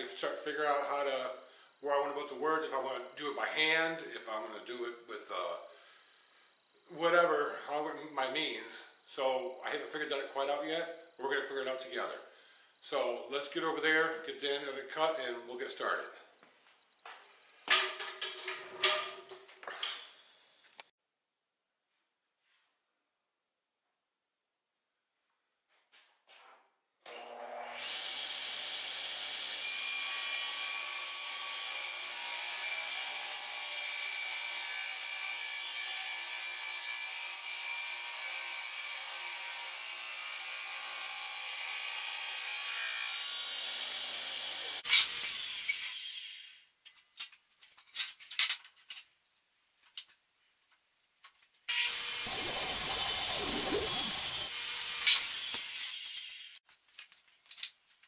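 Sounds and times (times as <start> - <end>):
knocks and clatters: 17.7 - 20.1
table saw cutting wood: 27.1 - 46.6, 51.7 - 56.6.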